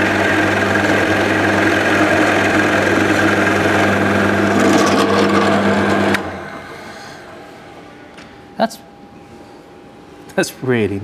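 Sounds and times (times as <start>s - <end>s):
drill press motor hum: 0.0s - 7.7s
drill bit rasping into wood: 0.1s - 6.2s.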